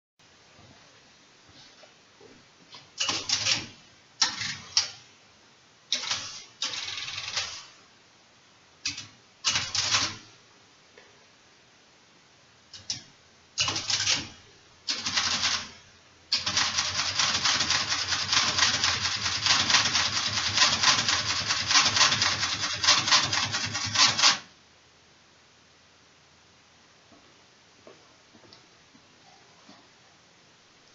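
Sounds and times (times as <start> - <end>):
mechanical calculator clatter: 3.0 - 4.6, 6.0 - 7.7, 8.9 - 10.2, 13.6 - 15.8, 16.4 - 24.5.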